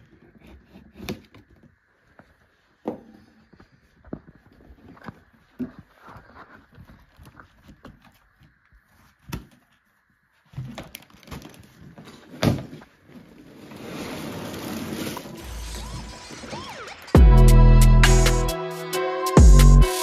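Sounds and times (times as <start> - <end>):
cardboard rustling and scraping: 0.0 - 16.2
loud music: 15.4 - 20.0.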